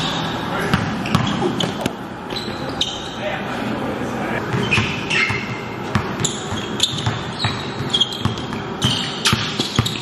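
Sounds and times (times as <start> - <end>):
sneakers squeaking: 0.0 - 3.4, 4.4 - 10.0
basketball bouncing on gym floor: 0.7 - 2.5, 4.5 - 10.0.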